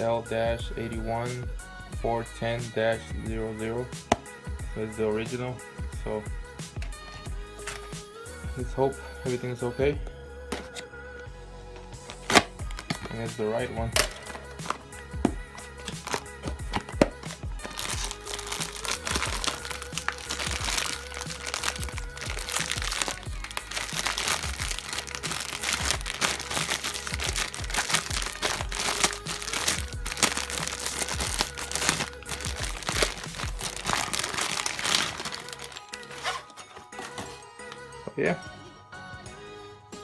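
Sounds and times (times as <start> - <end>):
background music: 0.0 - 40.0
plastic bag crinkling: 15.8 - 37.3.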